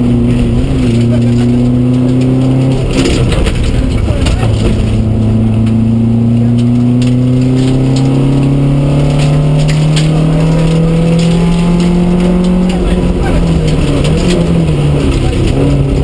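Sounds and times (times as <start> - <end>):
car engine revving up: 0.0 - 16.0
road and tyre rumble: 0.0 - 16.0.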